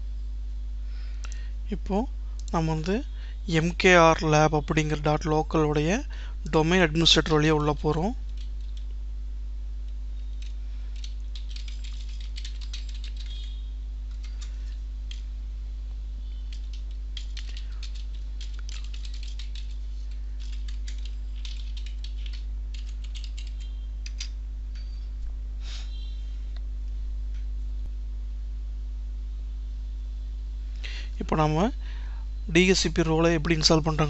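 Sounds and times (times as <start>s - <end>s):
steady low hum: 0.0s - 34.0s
computer keyboard typing: 7.2s - 8.9s, 10.3s - 15.3s, 16.4s - 24.4s.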